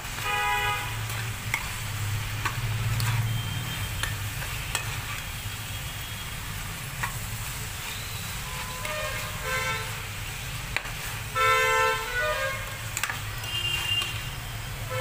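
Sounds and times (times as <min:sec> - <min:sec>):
frying sizzle: 0:00.0 - 0:15.0
metal spatula scraping pan: 0:00.8 - 0:05.5, 0:07.0 - 0:10.1, 0:10.7 - 0:15.0
spatula clicking against pan: 0:02.4 - 0:03.2, 0:12.9 - 0:14.2.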